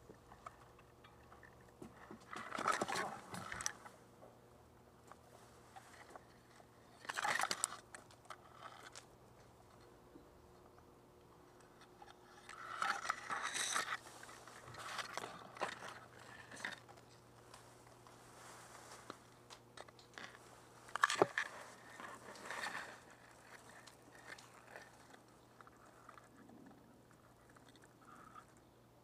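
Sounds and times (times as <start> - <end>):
grass and brush rustling: 11.9 - 28.6.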